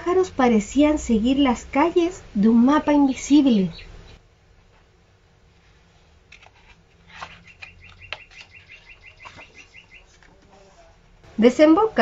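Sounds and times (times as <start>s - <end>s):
small bird chirping: 3.4s - 4.2s, 7.2s - 10.2s
book page rustling: 5.6s - 10.6s.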